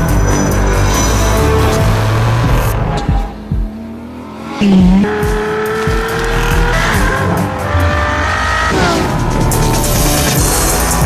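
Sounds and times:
background music: 0.0 - 11.0
sports car engine revving: 0.1 - 11.0.

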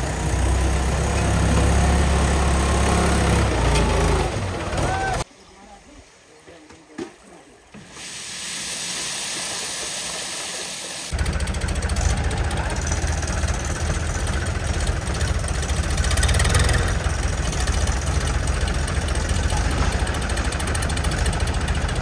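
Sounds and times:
diesel tractor engine running: 0.0 - 5.2, 7.8 - 22.0
steady hiss: 7.1 - 11.1.

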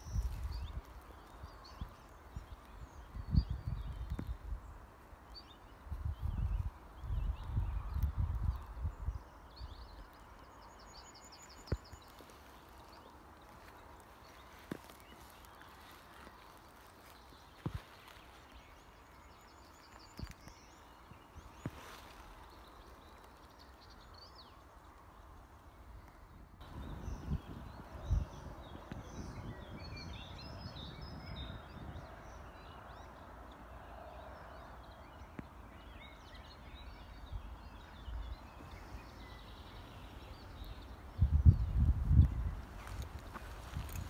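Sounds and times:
wind buffeting microphone: 0.0 - 4.9, 5.7 - 10.1, 26.2 - 33.4, 35.3 - 44.0
small birds chirping and singing: 0.0 - 44.0.

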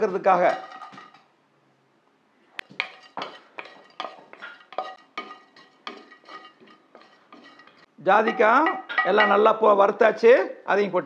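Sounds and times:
wooden spatula scraping pan: 2.8 - 8.8.

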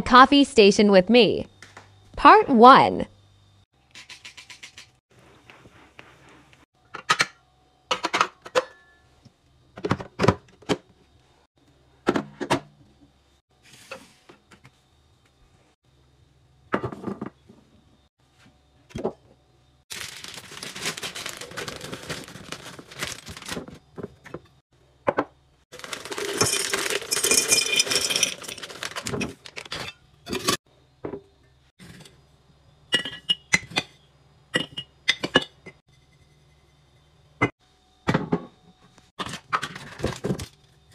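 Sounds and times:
dry contents pouring into jar: 19.9 - 23.5, 25.8 - 29.2
plastic bag rustling: 19.9 - 23.8, 25.7 - 29.8
kitchen items clicking and knocking: 25.1 - 30.6
glass jar and lid clinking: 25.8 - 29.2.

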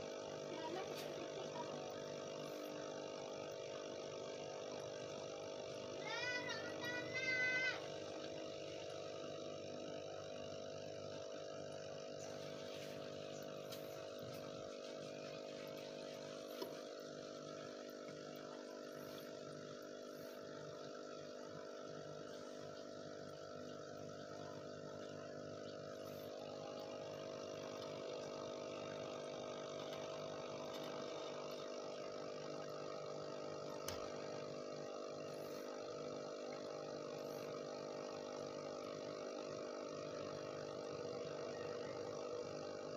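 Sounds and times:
aquarium air pump humming: 0.0 - 42.9
faint hiss of bubbles: 10.6 - 42.9.

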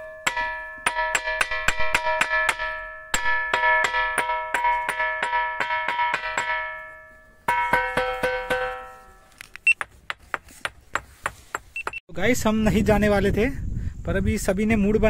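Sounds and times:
stone striking ringing rock: 0.0 - 11.1.

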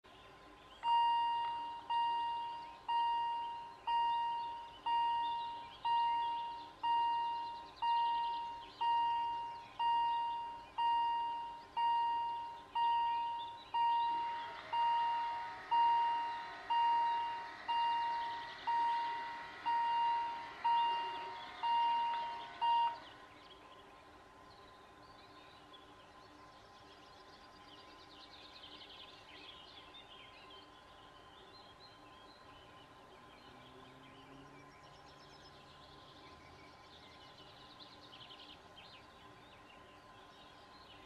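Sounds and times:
level crossing warning bell: 0.8 - 23.1
barrier drive whirring: 12.3 - 23.4.

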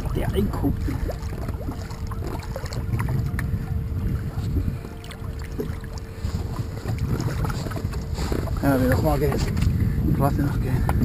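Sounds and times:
faint steady hum: 0.0 - 11.0
muffled underwater rumble: 0.0 - 11.0.

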